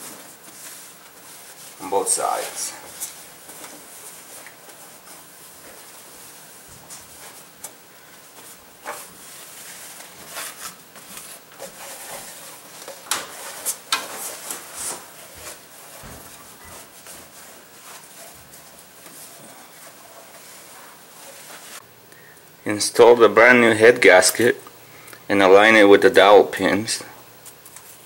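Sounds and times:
towel rubbing on metal: 0:00.0 - 0:21.8.

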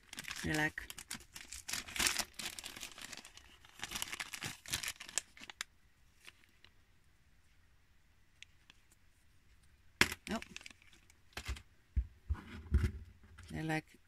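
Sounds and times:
packaging crinkling and rustling: 0:00.0 - 0:06.7, 0:10.0 - 0:11.6.

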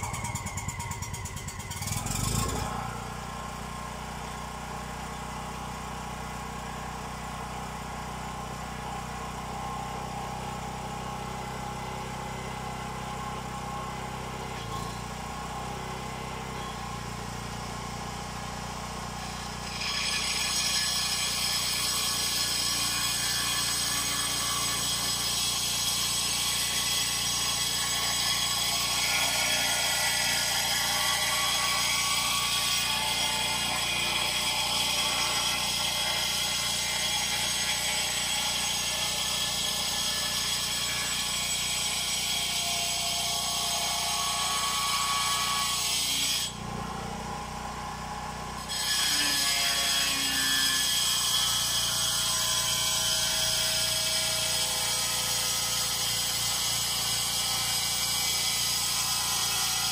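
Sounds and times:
brush cutter engine revving: 0:00.0 - 0:03.2.

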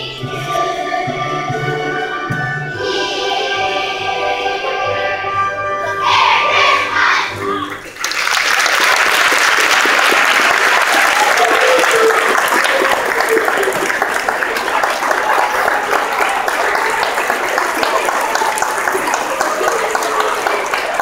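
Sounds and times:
audience applause: 0:07.8 - 0:21.0.

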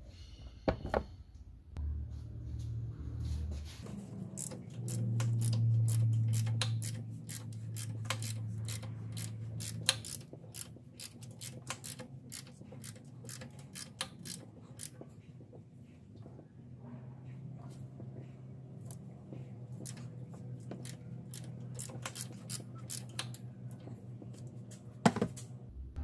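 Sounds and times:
low steady hum: 0:00.7 - 0:11.0
ratchet clicking: 0:04.4 - 0:15.0, 0:20.8 - 0:23.4.

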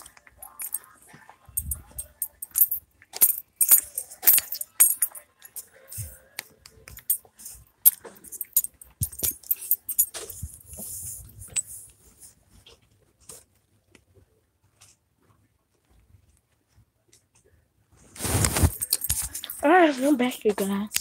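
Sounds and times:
rough rustle: 0:18.1 - 0:19.6.

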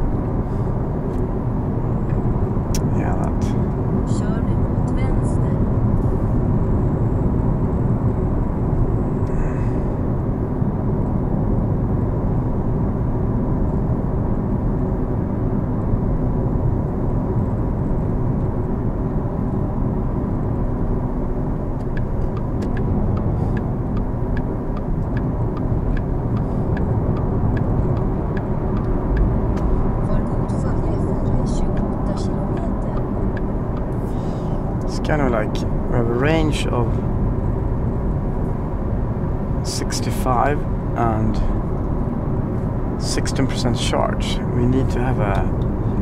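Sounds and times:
light ticks: 0:21.8 - 0:29.7.

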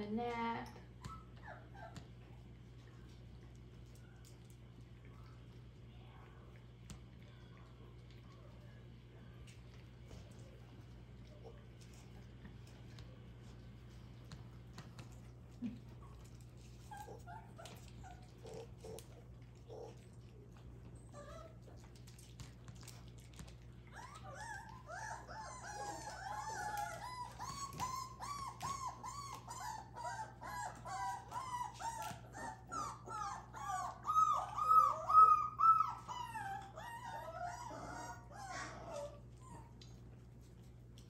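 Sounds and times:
puppy whining and yelping: 0:00.9 - 0:02.2, 0:15.8 - 0:20.1, 0:20.8 - 0:21.9, 0:23.8 - 0:40.1.

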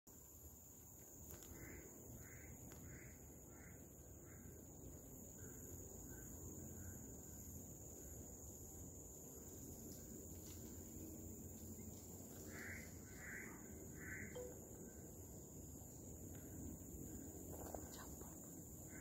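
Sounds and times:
high insect drone: 0:00.1 - 0:19.0.

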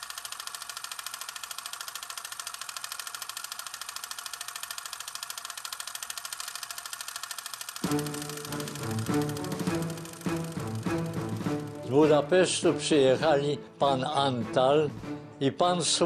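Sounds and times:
film projector clattering: 0:00.0 - 0:12.2.

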